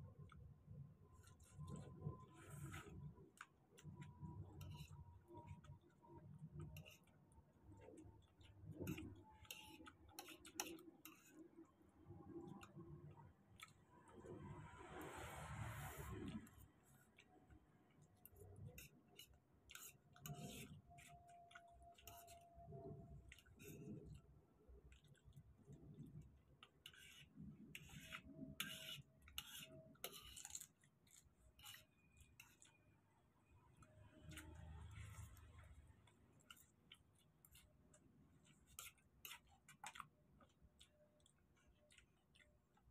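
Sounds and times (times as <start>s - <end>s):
chewing and wet smacking: 0.1s - 14.5s, 16.2s - 26.9s, 30.4s - 42.9s
fork clicking and tapping on food: 7.7s - 11.4s.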